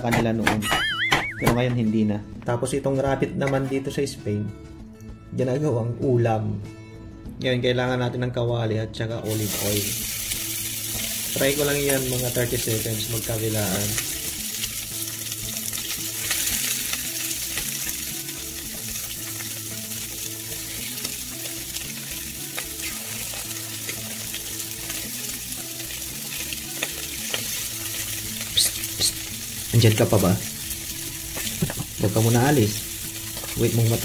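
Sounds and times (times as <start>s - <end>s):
meat sizzling in frying pan: 9.3s - 34.0s.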